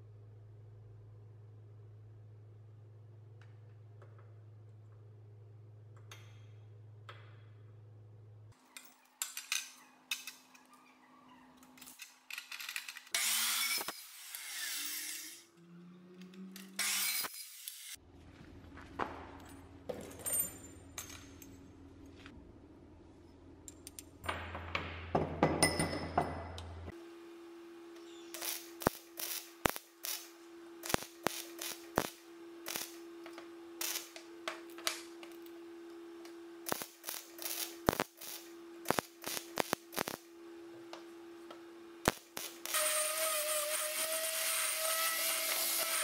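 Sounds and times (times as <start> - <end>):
cut-off saw grinding through steel: 13.2 - 15.6, 42.7 - 46.0.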